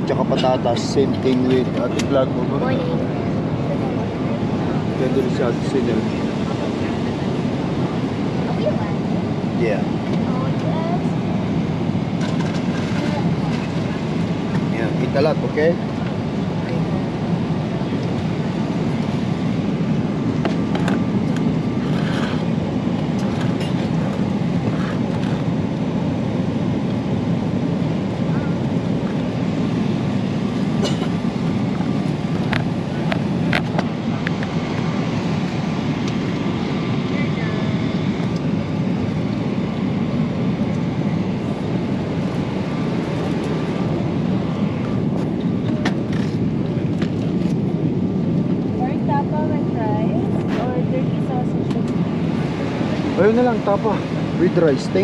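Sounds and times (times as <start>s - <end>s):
airliner engines and airflow: 0.0s - 55.0s.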